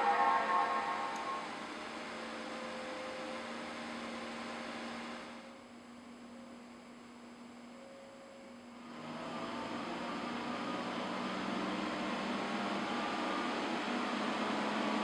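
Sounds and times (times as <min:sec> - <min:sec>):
low computer hum: 0:00.0 - 0:07.7.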